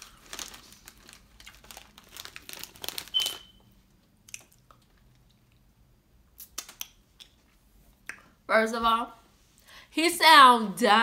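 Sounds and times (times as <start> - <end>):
chip bag crinkling: 0.0 - 3.7.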